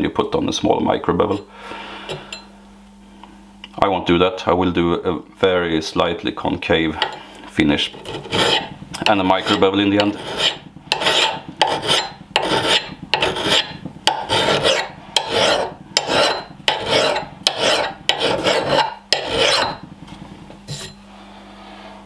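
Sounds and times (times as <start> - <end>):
file rasping on steel: 7.8 - 19.8, 20.7 - 21.0.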